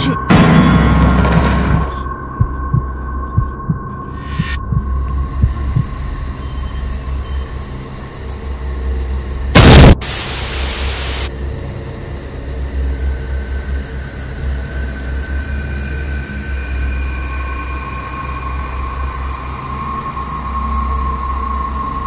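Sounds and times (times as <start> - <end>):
loud sudden hit: 0.3 - 2.0, 9.6 - 10.8
static hiss: 9.6 - 11.3.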